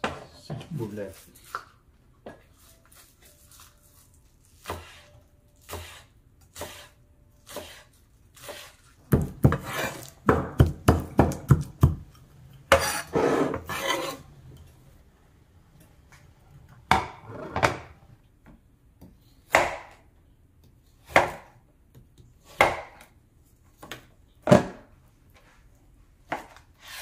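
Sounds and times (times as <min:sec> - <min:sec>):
knife chopping on cutting board: 0:04.6 - 0:14.2, 0:19.0 - 0:20.0, 0:21.0 - 0:21.6, 0:22.4 - 0:23.1
blade scraping across board: 0:09.6 - 0:10.1, 0:12.7 - 0:14.3.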